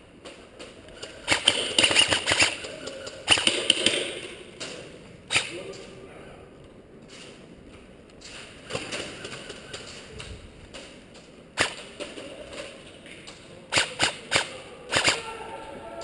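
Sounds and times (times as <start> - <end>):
airsoft rifle shots: 1.2 - 5.7, 11.6 - 12.7, 13.7 - 15.4.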